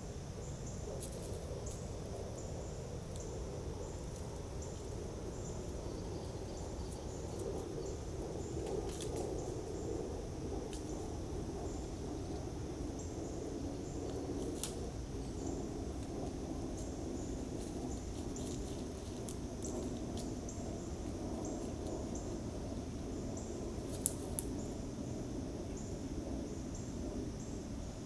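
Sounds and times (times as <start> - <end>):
high pulsing insect chorus: 0.0 - 28.0
low woodland noise: 0.0 - 28.0.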